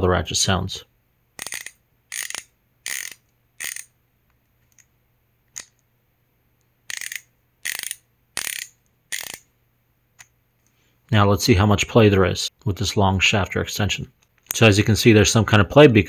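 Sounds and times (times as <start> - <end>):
ratcheting screwdriver clicking: 1.4 - 3.9, 6.9 - 9.4.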